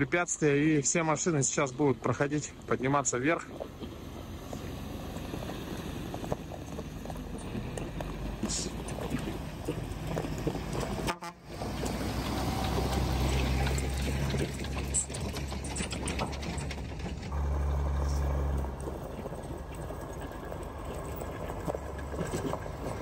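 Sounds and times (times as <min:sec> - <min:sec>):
diesel trucks running: 0:00.0 - 0:23.0
truck horn blasts: 0:11.0 - 0:11.7.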